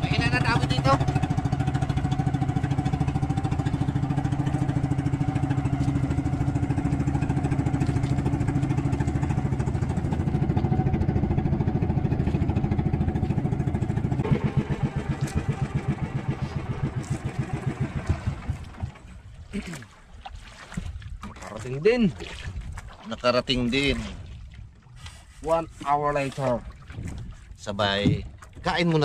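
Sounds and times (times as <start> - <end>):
boat engine running: 0.0 - 29.0.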